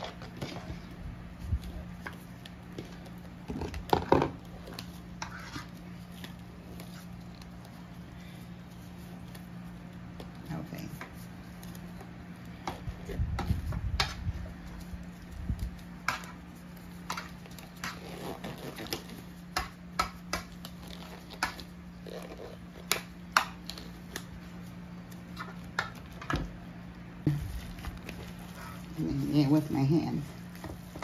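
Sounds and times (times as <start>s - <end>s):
steady low hum: 0.0s - 31.0s
gloves snapping and crinkling: 11.4s - 26.2s.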